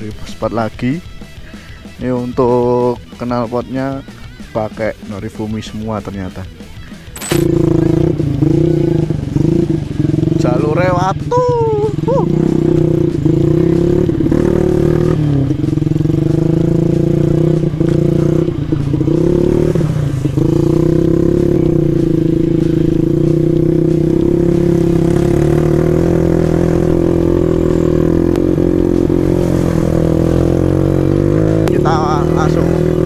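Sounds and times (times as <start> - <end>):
motorcycle engine under throttle: 7.2 - 33.0.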